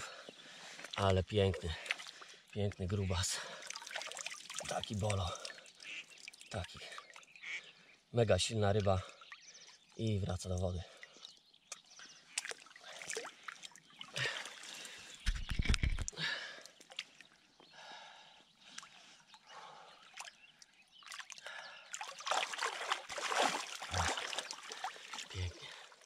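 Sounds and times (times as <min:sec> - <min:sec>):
river water sloshing and splashing: 0:01.8 - 0:02.4, 0:03.4 - 0:07.6, 0:11.0 - 0:15.3, 0:18.7 - 0:26.0.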